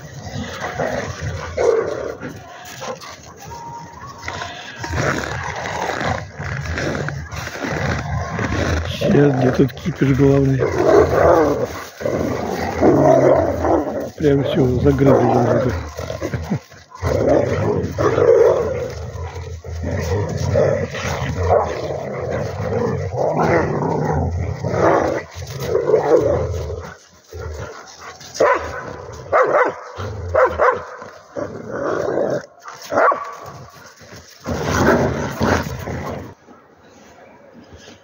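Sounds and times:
dogs growling: 0:00.0 - 0:36.4
dogs barking: 0:27.7 - 0:31.1, 0:32.7 - 0:33.5.

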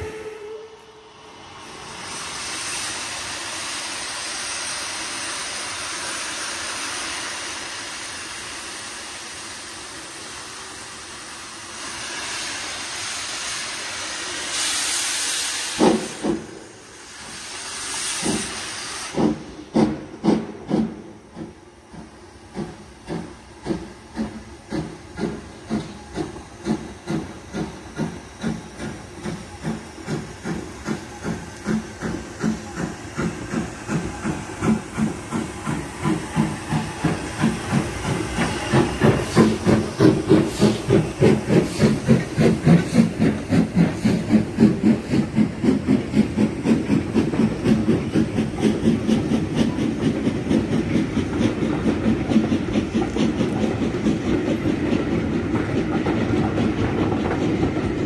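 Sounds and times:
locomotive whistle blast: 0:00.0 - 0:01.1
steam hissing: 0:00.0 - 0:58.0
steam locomotive chuffing: 0:00.0 - 0:58.0.

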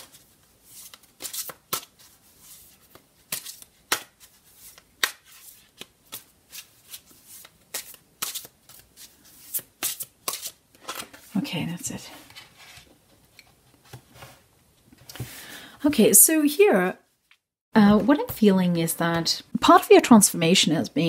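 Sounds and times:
cards being shuffled: 0:00.0 - 0:11.3.

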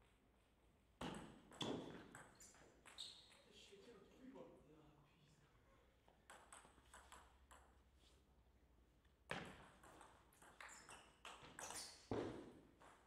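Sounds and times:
table tennis ball bouncing: 0:01.0 - 0:03.4, 0:06.3 - 0:07.8, 0:09.3 - 0:13.0
table tennis rally: 0:01.0 - 0:03.9, 0:06.1 - 0:07.9, 0:09.3 - 0:13.0.

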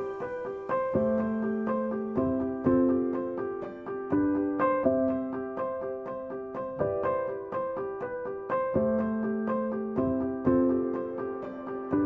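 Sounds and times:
piano playing: 0:00.0 - 0:12.0.

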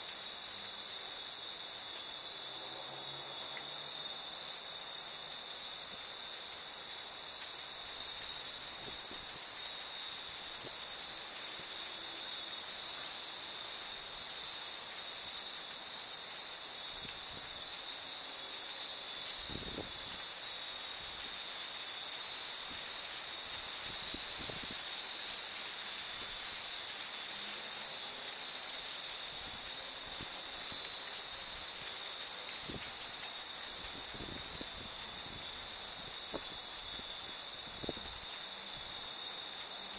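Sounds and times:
insects shrilling: 0:00.0 - 0:39.9.

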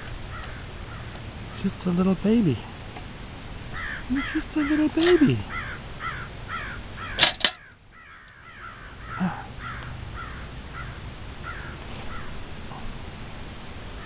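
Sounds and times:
crows cawing: 0:00.0 - 0:01.7, 0:03.7 - 0:12.4.

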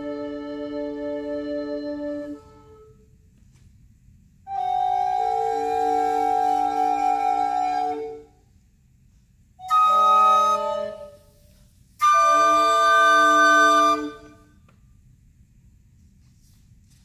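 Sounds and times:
recorder ensemble playing chords: 0:00.0 - 0:02.8.

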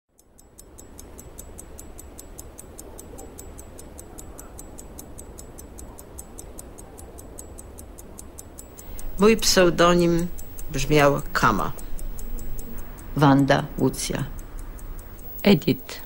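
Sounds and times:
rapid even ticking: 0:00.1 - 0:16.0
low steady rumble: 0:08.7 - 0:16.0.

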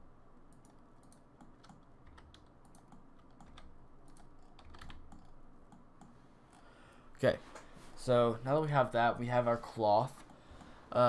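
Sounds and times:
keyboard and mouse clicking: 0:00.5 - 0:06.6.

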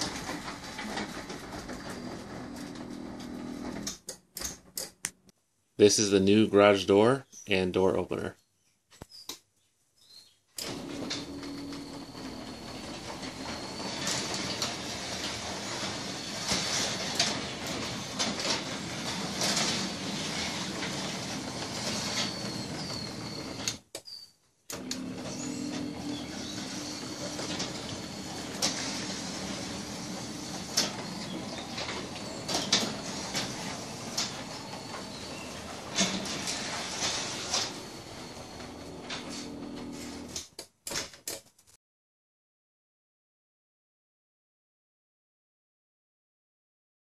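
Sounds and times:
garage door opener running: 0:00.0 - 0:04.7, 0:10.6 - 0:23.9, 0:24.7 - 0:40.5.

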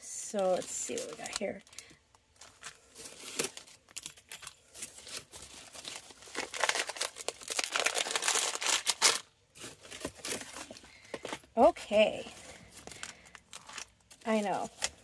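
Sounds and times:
plastic packaging crinkling: 0:00.4 - 0:11.6, 0:12.2 - 0:15.0.

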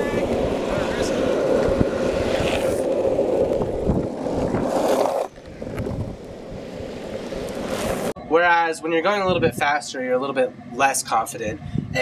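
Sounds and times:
longboard wheels rolling on asphalt: 0:00.0 - 0:08.2.

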